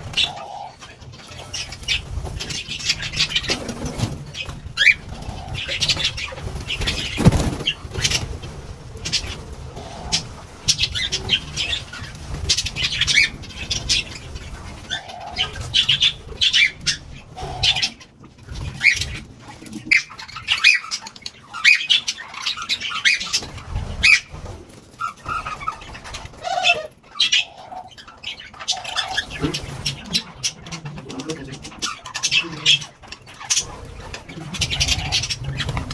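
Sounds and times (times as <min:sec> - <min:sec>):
bird cooing: 0:00.0 - 0:01.0, 0:04.8 - 0:07.6, 0:26.3 - 0:27.9
birds chirping: 0:00.0 - 0:35.9.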